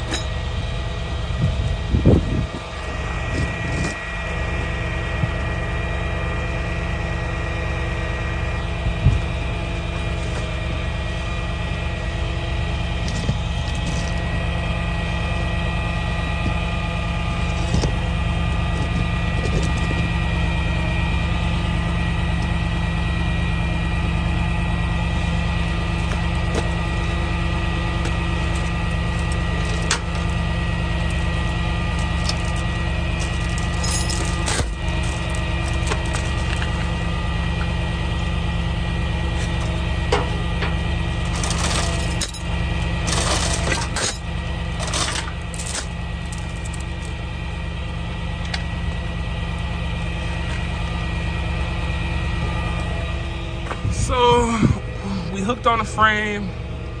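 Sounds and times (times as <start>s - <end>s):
truck engine idling: 23.7s - 53.7s
metal clanks and knocks: 28.6s - 30.2s, 31.0s - 36.7s, 40.1s - 47.2s.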